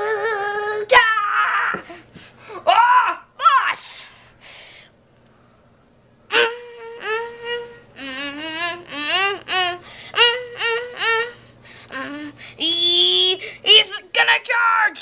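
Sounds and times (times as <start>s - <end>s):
child singing wordless tune: 0.0s - 1.1s, 6.3s - 15.0s.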